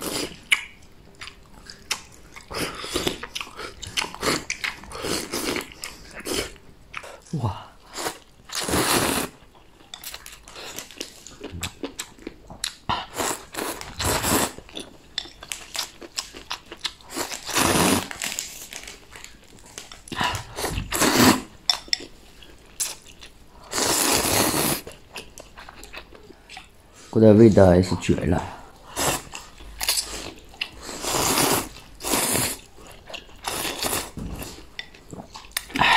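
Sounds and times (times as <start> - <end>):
person chewing: 0.0 - 26.8, 28.8 - 35.9
loud noodle slurps: 7.9 - 9.4, 17.2 - 18.2, 20.6 - 21.5, 23.7 - 24.8, 30.8 - 32.7.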